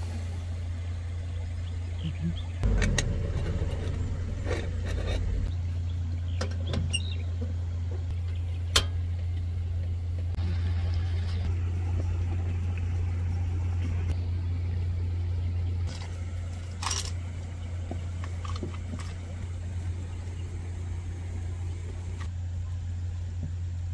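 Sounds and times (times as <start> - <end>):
steady low hum: 0.0 - 23.9.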